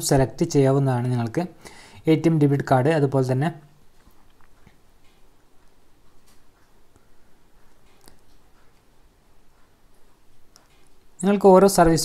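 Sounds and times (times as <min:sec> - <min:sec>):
low even hiss: 0:00.0 - 0:12.0.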